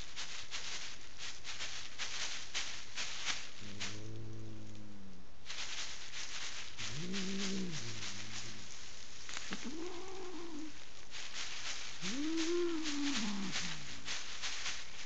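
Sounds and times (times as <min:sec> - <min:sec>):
plastic sheeting crackling: 0:00.0 - 0:04.6, 0:05.4 - 0:15.0
angry cat yowling: 0:12.0 - 0:13.8.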